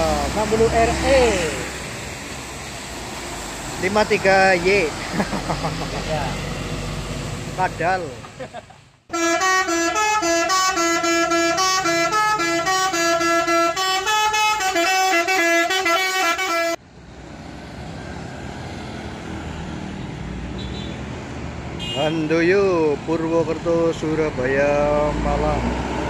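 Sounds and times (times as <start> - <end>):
bus engine: 0.0 - 26.0
road traffic rumble: 0.0 - 26.0
multi-tone bus horn melody: 9.1 - 16.8, 21.8 - 22.3.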